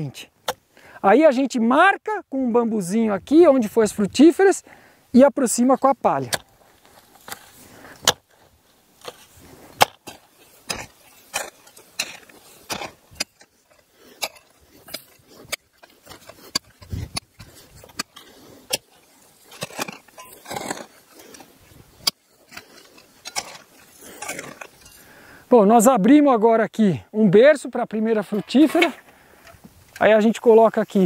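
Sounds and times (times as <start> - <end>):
digging tools striking soil: 0.4 - 0.7, 5.5 - 25.1, 28.2 - 30.7.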